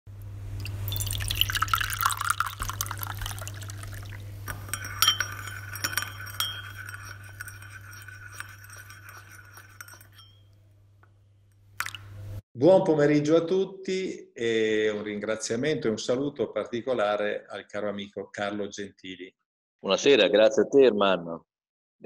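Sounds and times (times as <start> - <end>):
low steady hum: 0.1 - 12.4
liquid pouring into a cup: 0.6 - 10.0, 11.8 - 12.1
spoon clinking against a cup: 0.9 - 10.6.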